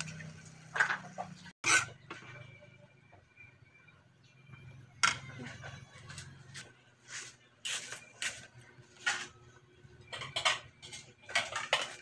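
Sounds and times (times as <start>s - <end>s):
spatula scraping a wok: 0.8s - 2.6s.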